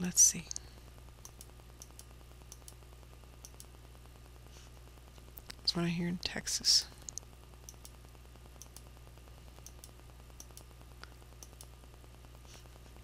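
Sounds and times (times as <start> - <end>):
low electrical hum: 0.0 - 13.0
computer mouse clicking: 1.2 - 2.8, 3.4 - 3.7, 7.0 - 8.0, 8.6 - 8.9, 9.6 - 11.7.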